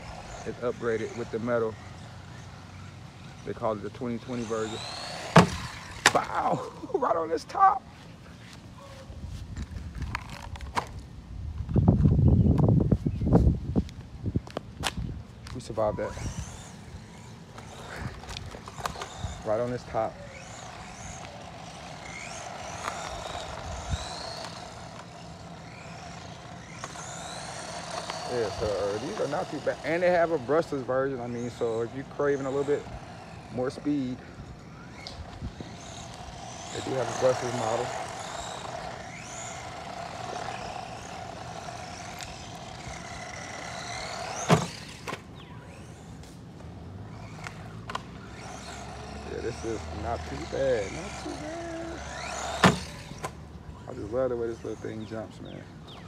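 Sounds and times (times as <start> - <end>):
toy truck motor whining: 0.0 - 7.8, 15.6 - 56.0
single thump: 5.3 - 6.2.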